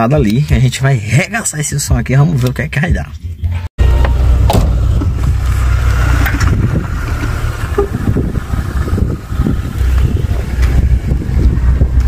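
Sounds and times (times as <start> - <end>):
heavy bass music from car: 3.4 - 12.0
wind on microphone: 4.7 - 12.0.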